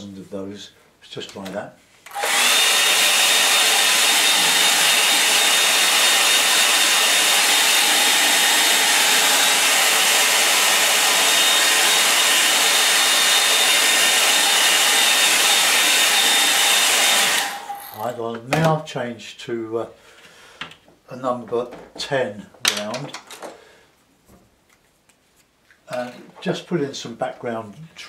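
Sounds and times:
hair dryer running: 2.1 - 18.0.

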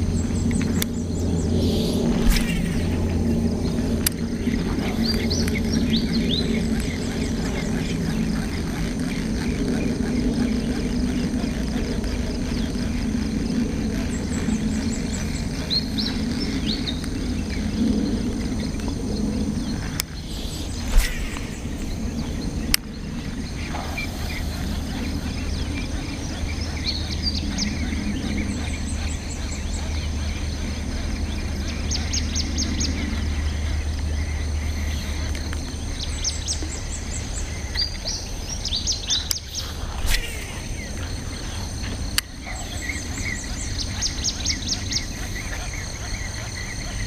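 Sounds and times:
small birds chirping: 0.0 - 47.0
steady low rumble: 0.0 - 47.0.

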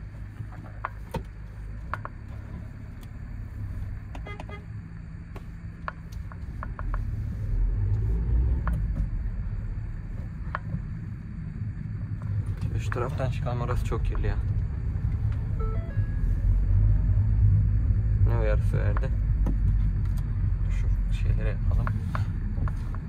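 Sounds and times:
van engine pulling away: 6.4 - 23.0
short electronic beep: 15.5 - 16.3.

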